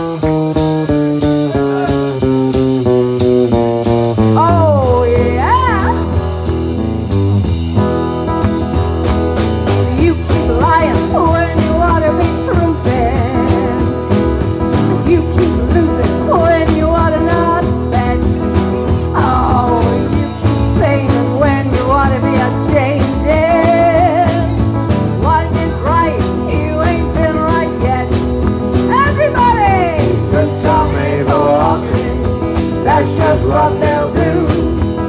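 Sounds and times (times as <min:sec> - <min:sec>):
drums keeping a steady beat: 0:00.0 - 0:35.0
live band playing: 0:00.0 - 0:35.0
woman singing: 0:04.4 - 0:06.2, 0:09.8 - 0:14.2, 0:14.9 - 0:35.0.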